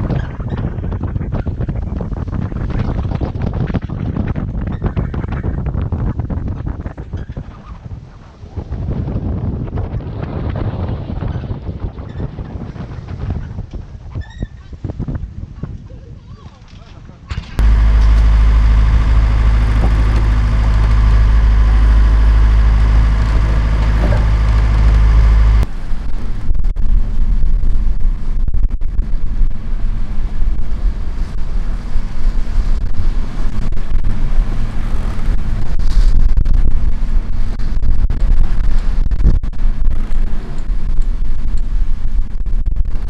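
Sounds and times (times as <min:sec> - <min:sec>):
wind buffeting microphone: 0:00.0 - 0:43.0
boat engine droning: 0:17.6 - 0:27.2, 0:29.0 - 0:41.2
waves rushing past hull: 0:17.6 - 0:28.4.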